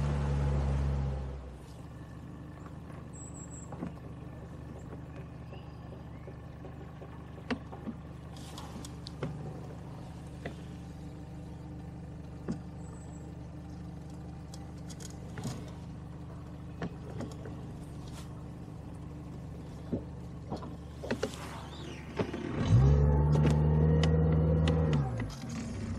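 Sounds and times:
engine idling hum: 0.0s - 25.9s
light clicks and knocks: 3.6s - 9.8s, 14.1s - 18.4s.

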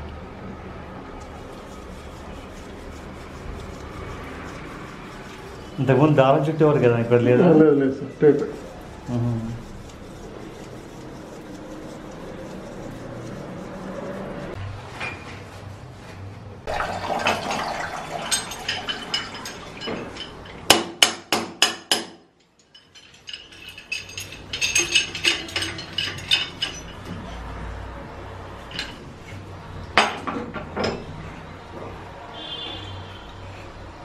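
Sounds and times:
pipe wrench clinking on tap: 18.3s - 27.2s
sharp metal knocks: 18.8s - 27.2s.

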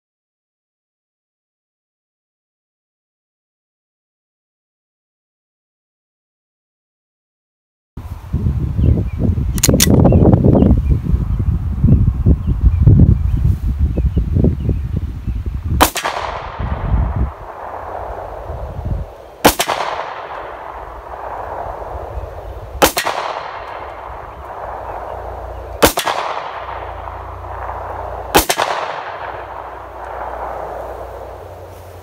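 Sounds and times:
pistol shots with echo: 15.8s - 31.7s.

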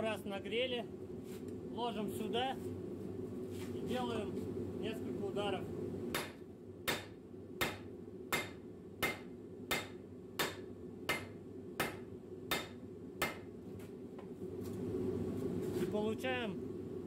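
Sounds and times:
hammer striking hot steel: 6.1s - 13.5s.

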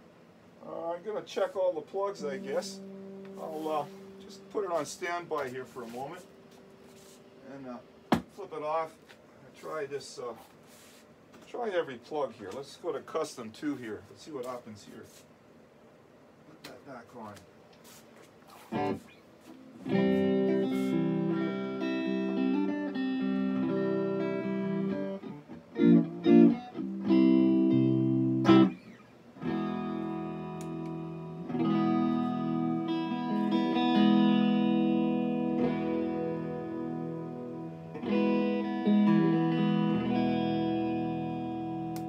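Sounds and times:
electric guitar chords: 2.0s - 8.0s, 18.7s - 42.0s.

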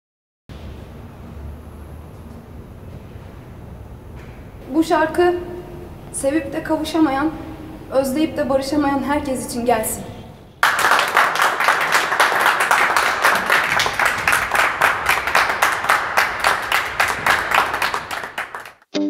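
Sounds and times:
hands clapping: 10.6s - 18.8s.

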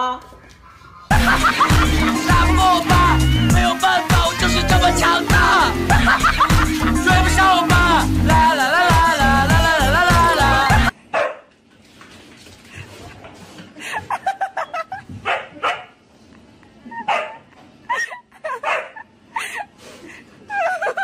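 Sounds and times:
music: 1.1s - 10.9s
dog barking and yelping: 11.2s - 11.4s, 15.2s - 15.9s, 16.9s - 17.5s, 18.5s - 19.1s.

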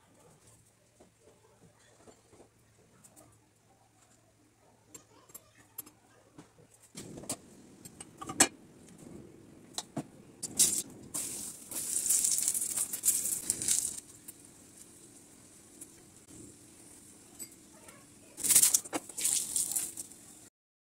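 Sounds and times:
flatbread sizzling in frying pan: 10.4s - 20.5s
cookware clinking: 17.3s - 17.7s.

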